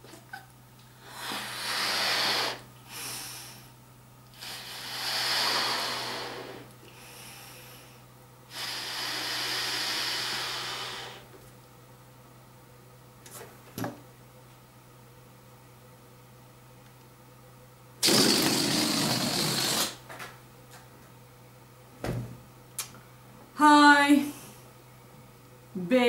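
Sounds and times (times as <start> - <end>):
person blowing up balloon: 1.0 - 3.7, 4.3 - 7.9, 8.5 - 11.3, 18.0 - 20.0
faint breaths: 1.0 - 11.3.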